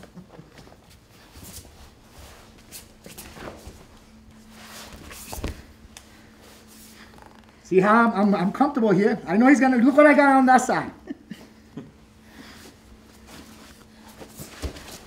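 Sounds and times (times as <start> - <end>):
fabric rustling: 0.7 - 7.6
bodies scuffing on mat: 0.8 - 7.0, 13.0 - 15.0.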